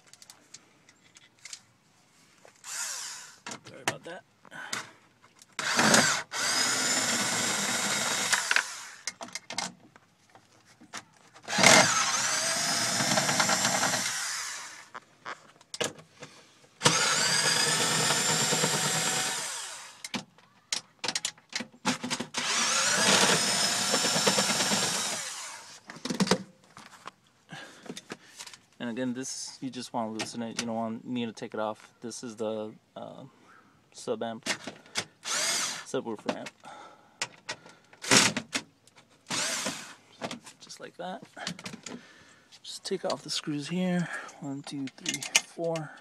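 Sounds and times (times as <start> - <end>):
cordless drill whining: 2.6 - 3.5, 5.6 - 9.2, 11.4 - 15.0, 16.8 - 20.2, 21.9 - 25.9, 34.8 - 35.9, 39.3 - 40.1.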